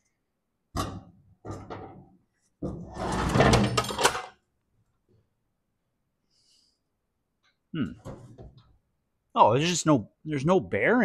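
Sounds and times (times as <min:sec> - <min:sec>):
metal deck scraping clatter: 0:02.6 - 0:04.2.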